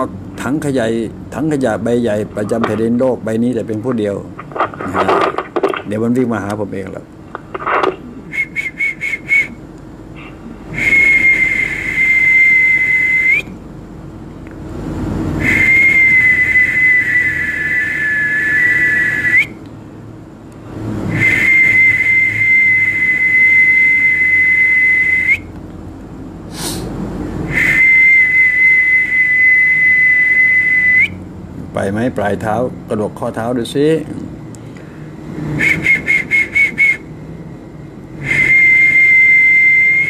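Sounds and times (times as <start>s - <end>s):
person whistling: 8.2s - 9.6s, 10.7s - 13.5s, 15.4s - 19.6s, 21.1s - 25.5s, 27.5s - 31.2s, 35.5s - 37.1s, 38.2s - 40.0s.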